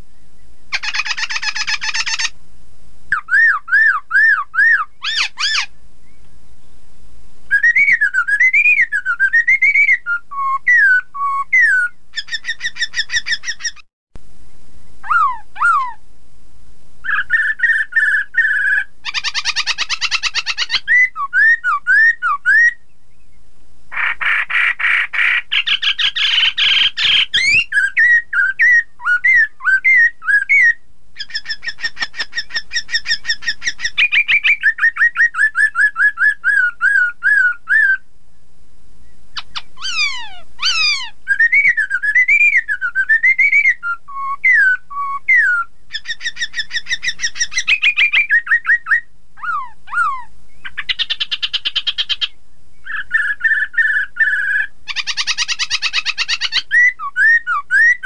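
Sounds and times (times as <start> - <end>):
bird singing whistled phrases: 3.1 - 6.4, 7.5 - 13.8, 15.0 - 16.0, 17.1 - 23.4, 25.3 - 38.0, 39.4 - 58.0
falling bird whistles: 7.5 - 13.8, 25.5 - 38.0, 39.4 - 49.0.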